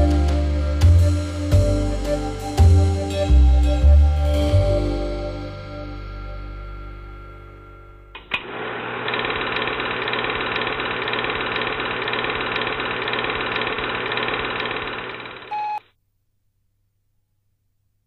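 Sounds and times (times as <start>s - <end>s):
rhythmic mechanical clatter: 9.1s - 15.5s
short beep: 15.5s - 15.8s.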